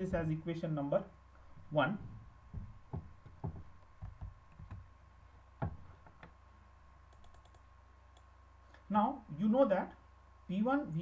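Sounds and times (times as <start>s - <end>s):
soft knocks: 2.0s - 4.8s, 5.6s - 5.9s
computer mouse clicks: 7.1s - 8.3s.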